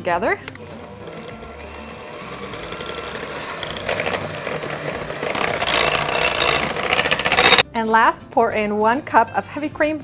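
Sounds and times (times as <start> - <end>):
electric hand mixer whirring: 0.6 - 7.6.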